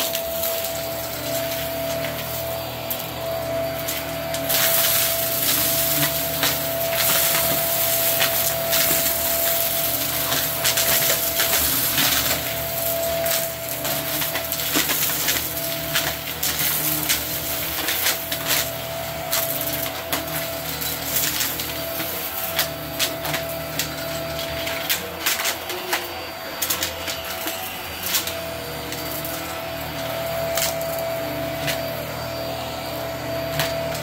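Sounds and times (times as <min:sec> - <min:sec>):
stick vacuum motor whine: 0:00.0 - 0:34.0
debris crackling into vacuum: 0:03.8 - 0:18.7.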